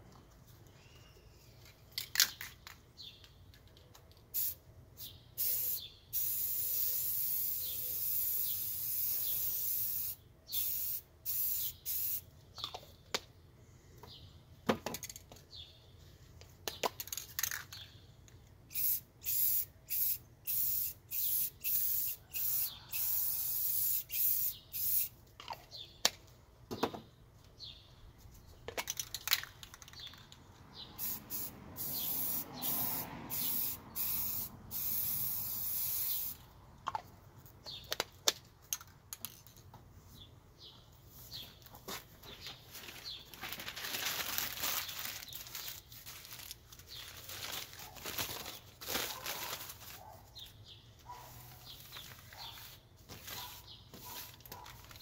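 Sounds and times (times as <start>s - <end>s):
spray paint can hissing: 4.3s - 12.3s, 18.7s - 25.2s, 31.0s - 36.4s.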